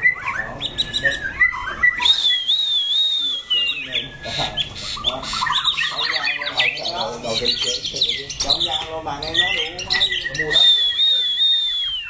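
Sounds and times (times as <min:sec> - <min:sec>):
birds chirping and whistling: 0:00.0 - 0:12.0
long wavering bird whistle: 0:01.0 - 0:04.4, 0:10.2 - 0:12.0.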